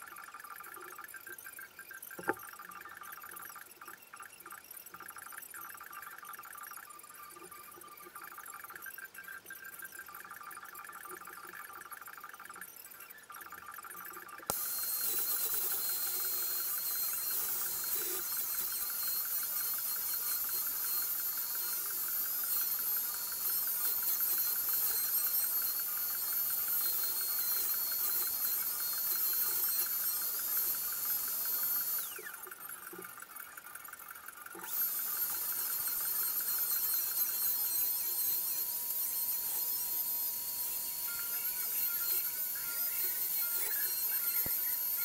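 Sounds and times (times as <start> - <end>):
trim router whining: 14.5 - 32.5, 34.6 - 45.0.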